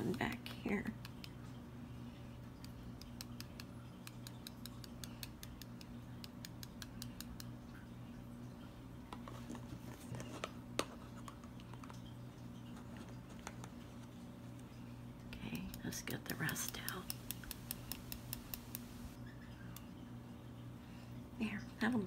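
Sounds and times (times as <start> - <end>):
low steady hum: 0.0 - 22.0
fingertips tapping mesh strainer: 2.6 - 7.5, 15.6 - 19.2
scattered clicks: 15.7 - 19.1.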